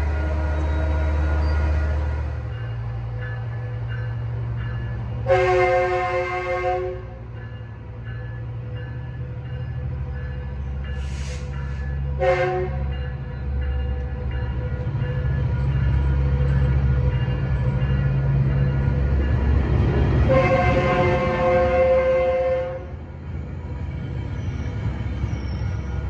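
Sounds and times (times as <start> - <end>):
train horn blasts: 0.0 - 2.3, 5.2 - 7.2, 12.2 - 13.0, 20.2 - 23.0
train rumbling: 0.0 - 26.0
short hiss: 11.0 - 11.8.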